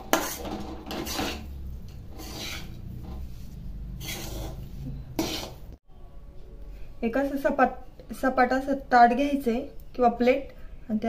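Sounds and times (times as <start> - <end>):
spatula scraping a metal pan: 0.0 - 5.8.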